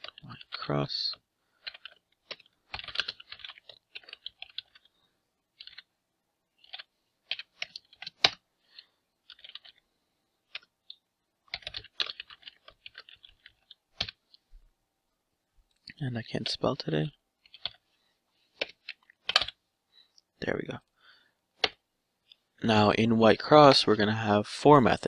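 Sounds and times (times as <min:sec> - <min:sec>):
typing on computer keyboard: 0:01.6 - 0:04.9, 0:05.6 - 0:05.9, 0:06.6 - 0:09.8, 0:10.5 - 0:14.2.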